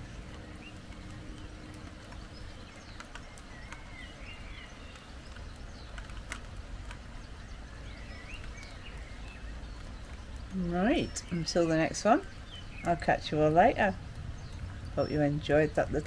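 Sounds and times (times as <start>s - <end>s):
sharp ticks: 0.0s - 7.1s
outdoor background hiss: 0.0s - 16.0s
small birds chirping: 0.0s - 16.0s.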